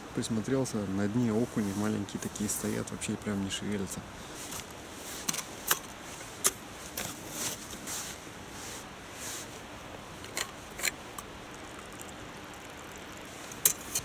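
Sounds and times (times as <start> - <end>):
soft handling noise: 1.2 - 11.2
metal thermos clinking: 10.2 - 12.7, 13.5 - 14.0.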